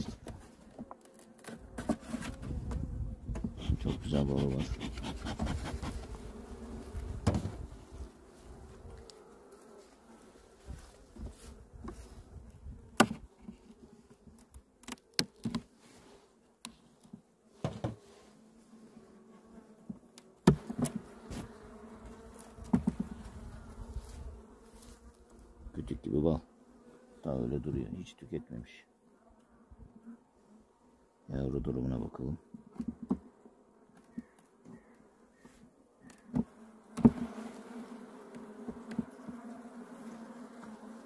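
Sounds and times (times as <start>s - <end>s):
bees humming: 18.6s - 25.5s, 33.3s - 41.0s.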